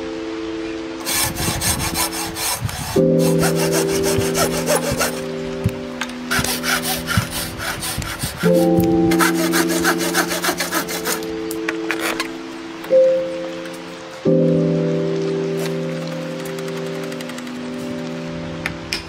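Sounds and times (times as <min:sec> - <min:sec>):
background music with sustained tones: 0:00.0 - 0:19.0
hand saw cutting wood: 0:01.0 - 0:05.3, 0:06.3 - 0:11.3, 0:11.9 - 0:12.3.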